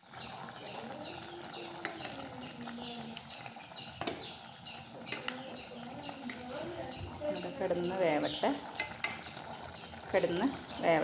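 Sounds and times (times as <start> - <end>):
bird chirping: 0.1 - 11.0
spoon clicking against steel pot: 8.8 - 9.3.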